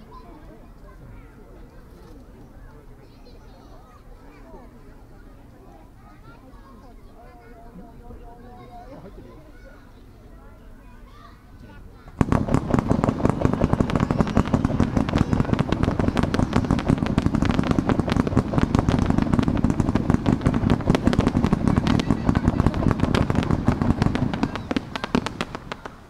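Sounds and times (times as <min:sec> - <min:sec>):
fireworks bangs and pops: 0:12.2 - 0:26.0.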